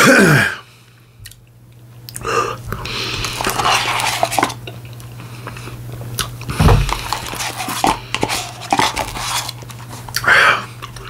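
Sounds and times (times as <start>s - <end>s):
steady low hum: 0.0s - 11.0s
biting and chewing: 2.1s - 11.0s.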